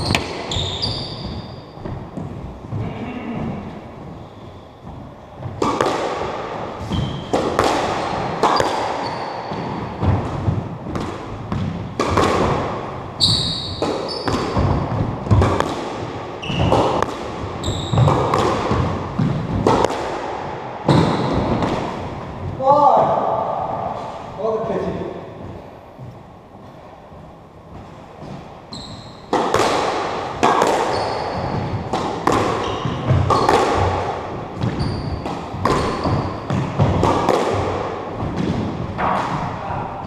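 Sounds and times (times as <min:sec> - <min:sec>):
shoes squeaking on wooden floor: 0:00.0 - 0:05.5, 0:06.8 - 0:07.4, 0:08.5 - 0:10.2, 0:13.2 - 0:15.4, 0:16.4 - 0:17.0, 0:17.6 - 0:18.3, 0:27.7 - 0:29.3, 0:30.7 - 0:31.9, 0:32.6 - 0:33.9, 0:34.5 - 0:36.9
squash ball hits echoing: 0:00.0 - 0:26.2, 0:27.7 - 0:40.0.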